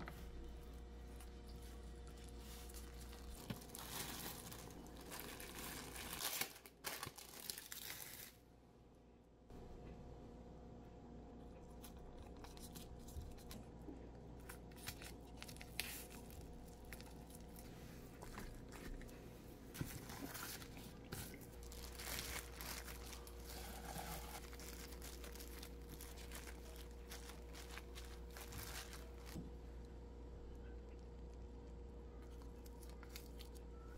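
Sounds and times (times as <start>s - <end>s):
faint steady hum: 0.0s - 33.9s
plastic crinkling and rustling: 1.2s - 8.4s, 14.4s - 29.6s, 32.2s - 33.9s.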